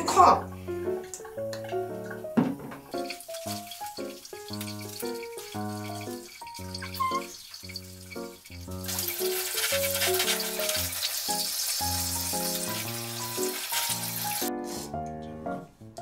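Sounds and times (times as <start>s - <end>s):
background music with light melody: 0.0s - 16.0s
water spraying from shower head: 2.9s - 15.0s.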